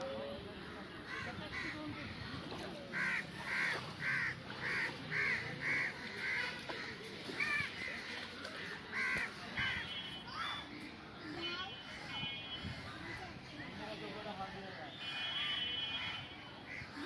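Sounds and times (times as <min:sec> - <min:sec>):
crow cawing: 0:03.0 - 0:09.9.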